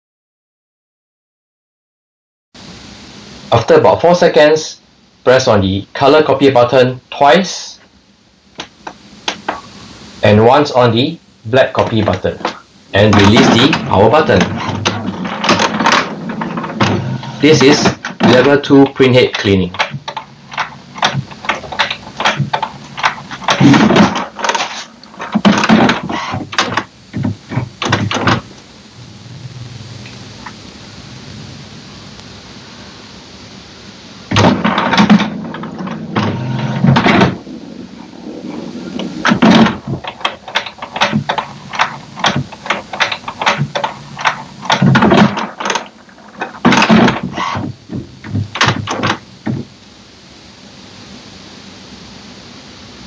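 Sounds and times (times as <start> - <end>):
printer low whir: 8.6 - 53.0
printer mechanism clicking and clunking: 11.8 - 28.5, 34.3 - 37.4, 39.0 - 49.7.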